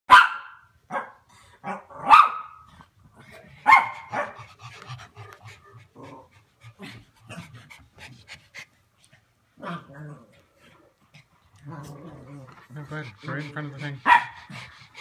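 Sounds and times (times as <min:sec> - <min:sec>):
dogs barking: 0:00.1 - 0:02.6, 0:03.6 - 0:04.5, 0:13.6 - 0:14.7
dog panting: 0:03.2 - 0:09.6, 0:10.4 - 0:15.0.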